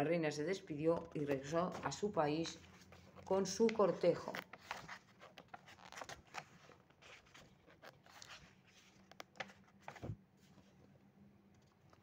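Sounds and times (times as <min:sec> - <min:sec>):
faint steady hum: 0:00.0 - 0:12.0
small clicks and rustles: 0:02.7 - 0:10.9, 0:11.5 - 0:12.0.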